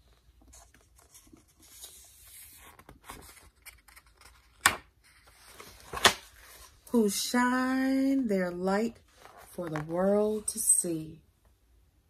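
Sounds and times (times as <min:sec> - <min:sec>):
book pages rustling: 0:00.0 - 0:07.0, 0:09.0 - 0:10.7.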